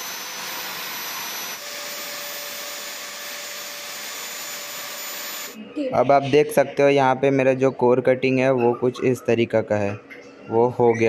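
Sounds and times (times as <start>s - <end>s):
core drill motor whine: 0.0s - 5.6s
drill bit cutting concrete: 0.0s - 5.6s.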